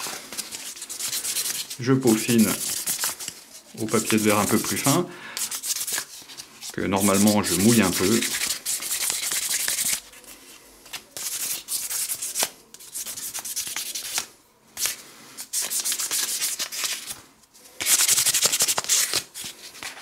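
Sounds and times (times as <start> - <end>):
sanding on sandpaper: 7.0 - 10.0.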